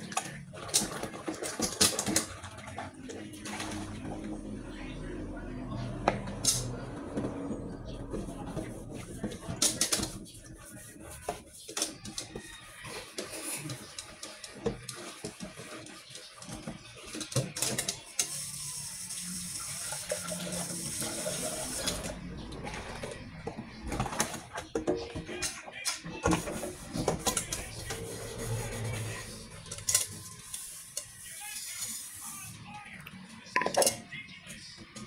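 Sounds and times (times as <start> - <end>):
glassware and crockery clinking: 33.5 - 34.2.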